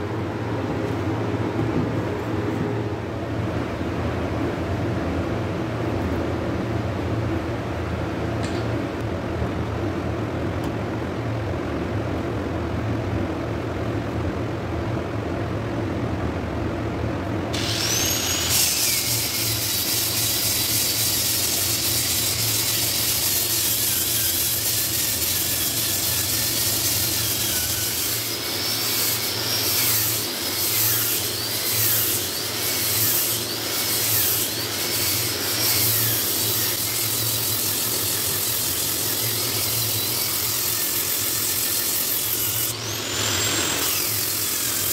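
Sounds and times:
low background hum: 0:00.0 - 0:44.9
angle grinder sanding wood: 0:17.6 - 0:44.9.

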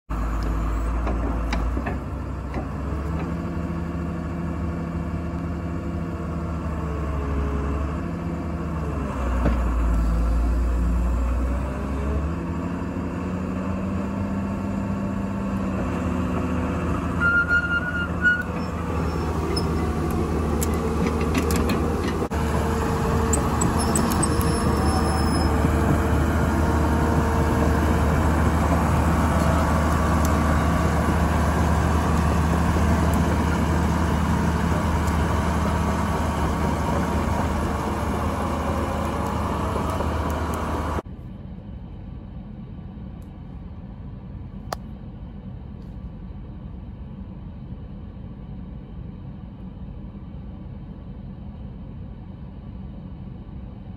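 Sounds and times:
diesel engine idling: 0:17.9 - 0:41.2.

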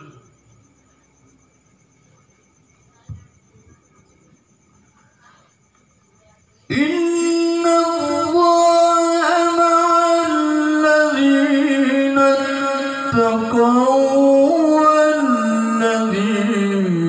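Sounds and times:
man chanting recitation: 0:06.7 - 0:17.0.

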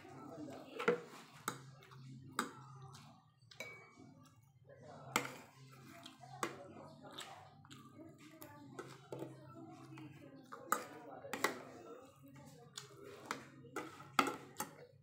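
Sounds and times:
cutlery clinking on ceramic plate: 0:03.5 - 0:04.0.

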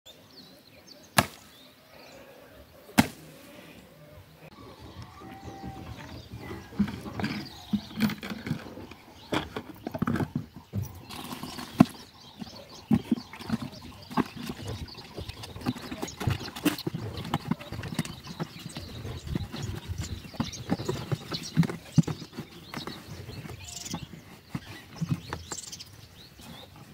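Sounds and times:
plastic buckets knocking: 0:04.5 - 0:25.8.

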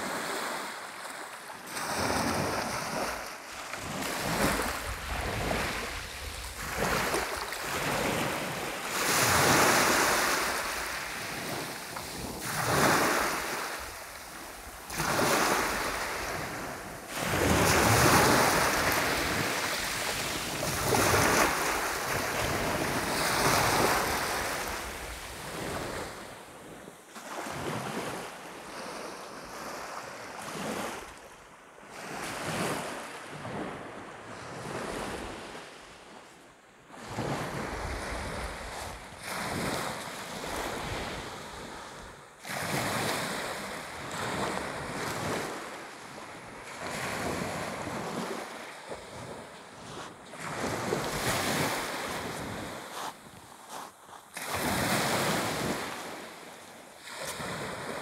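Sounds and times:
surf washing onto shore: 0:00.0 - 0:26.4.

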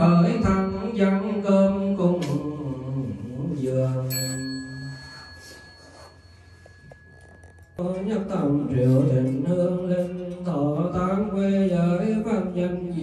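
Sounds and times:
monk chanting through microphone: 0:00.0 - 0:04.2, 0:07.8 - 0:13.0
bell ringing: 0:04.1 - 0:07.8.

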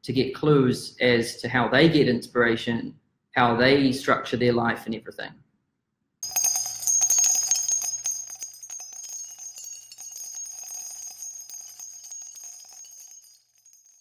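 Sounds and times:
tinkling jingling bells: 0:06.2 - 0:14.0.

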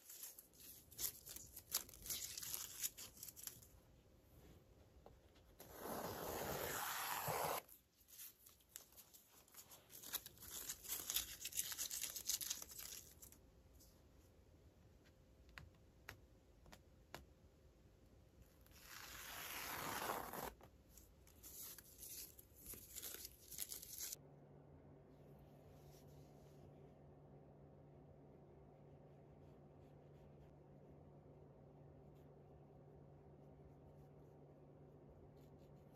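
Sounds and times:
crackly tape rustling: 0:00.0 - 0:03.9, 0:07.7 - 0:14.0, 0:20.0 - 0:24.2
tape ripping off fabric: 0:18.7 - 0:20.6.

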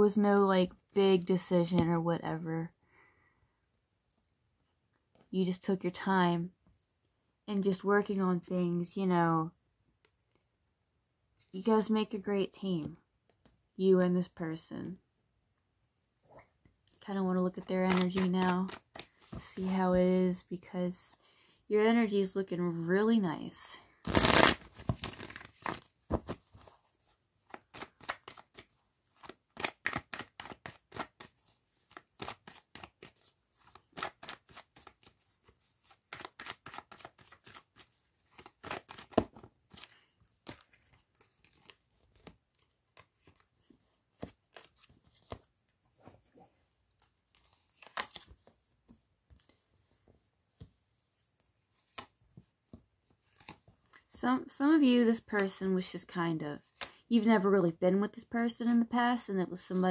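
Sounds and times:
cards being shuffled: 0:17.8 - 0:19.8, 0:24.0 - 0:46.1, 0:47.0 - 0:48.6, 0:51.7 - 0:53.8.

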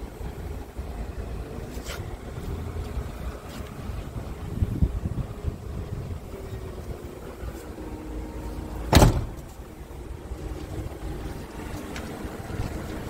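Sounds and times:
wind rumble on microphone: 0:00.0 - 0:08.4
truck door shutting: 0:08.8 - 0:09.7.

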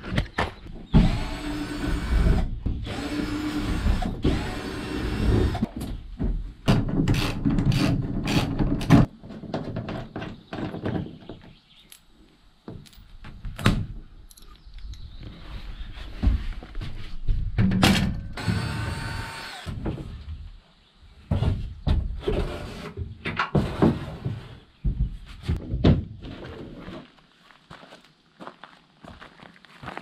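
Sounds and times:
power drill running: 0:02.9 - 0:05.6, 0:18.4 - 0:19.7
knocks and clatter: 0:17.5 - 0:18.4.

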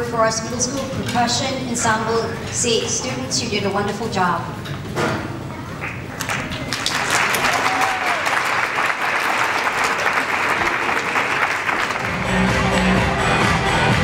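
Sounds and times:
audience applauding: 0:05.8 - 0:13.2.

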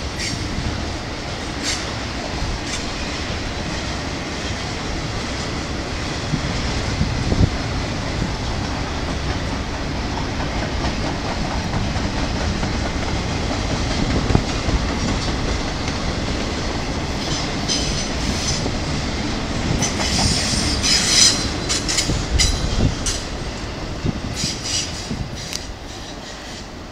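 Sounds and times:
train wheels squealing: 0:17.2 - 0:18.7, 0:19.8 - 0:23.3, 0:24.4 - 0:26.8.

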